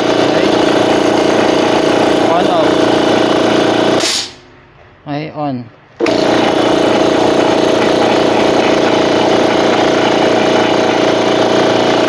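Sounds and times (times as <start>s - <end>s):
air compressor running: 0.0s - 5.0s, 5.8s - 12.0s.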